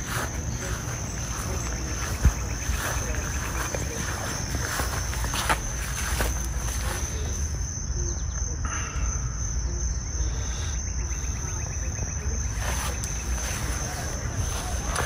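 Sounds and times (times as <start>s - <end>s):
insect chorus: 0.0s - 15.0s.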